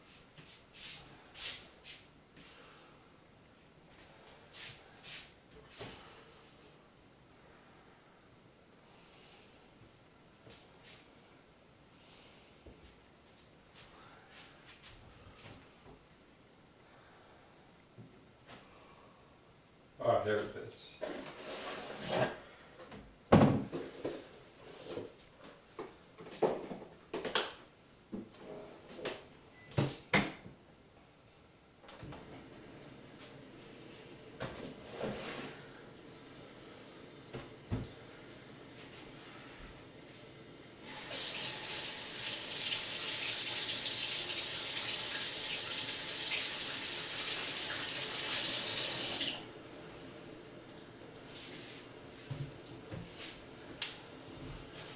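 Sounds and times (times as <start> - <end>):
faucet running into sink: 40.9 - 49.4.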